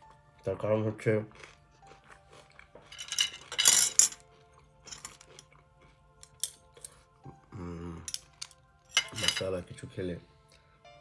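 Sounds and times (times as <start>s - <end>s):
cutlery clattering on tray: 2.9s - 4.2s, 8.1s - 9.5s.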